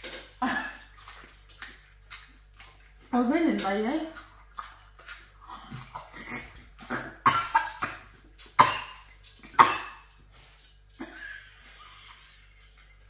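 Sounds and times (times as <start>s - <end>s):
people coughing and spluttering: 0.0s - 1.3s, 5.3s - 10.2s, 10.9s - 12.2s.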